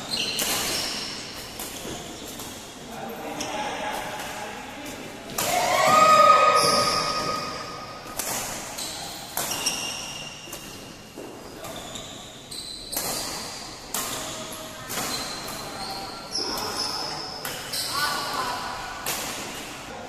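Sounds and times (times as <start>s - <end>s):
racket hitting shuttlecock: 5.3s - 11.0s, 19.0s - 19.8s.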